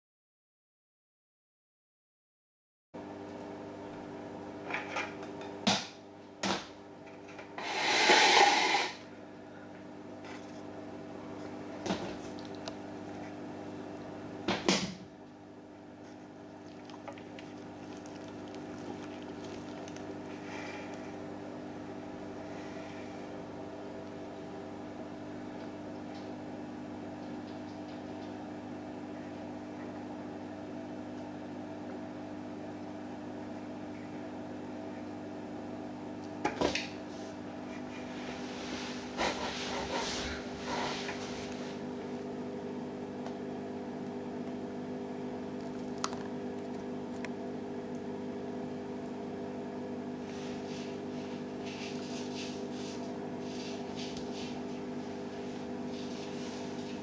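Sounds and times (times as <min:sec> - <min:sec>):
appliance humming: 0:03.0 - 0:57.0.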